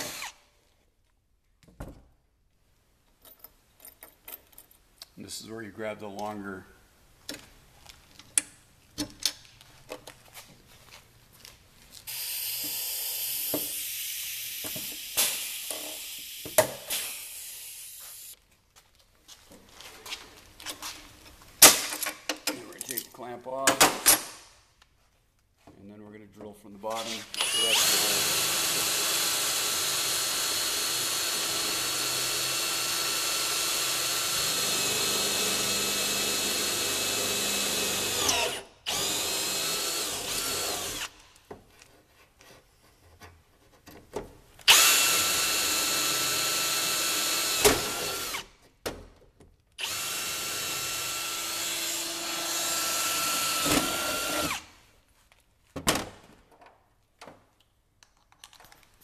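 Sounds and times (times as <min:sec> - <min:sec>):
cordless drill drilling metal: 0:00.0 - 0:00.4, 0:12.1 - 0:18.4, 0:27.0 - 0:41.2, 0:44.7 - 0:48.5, 0:49.8 - 0:54.7.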